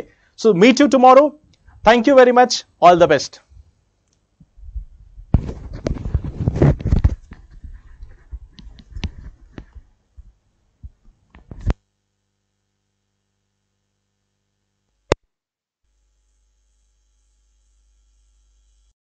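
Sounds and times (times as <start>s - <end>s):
microphone rustling against clothing: 4.4s - 11.8s.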